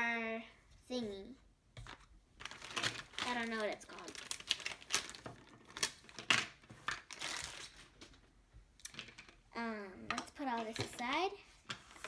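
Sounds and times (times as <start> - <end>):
plastic bag crinkling: 1.9 - 8.0.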